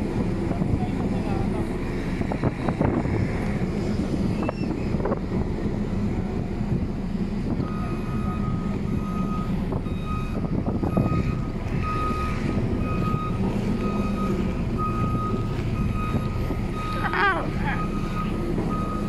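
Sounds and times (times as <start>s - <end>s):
diesel engine rumbling: 0.0s - 19.0s
reversing alarm beeping: 7.6s - 19.0s.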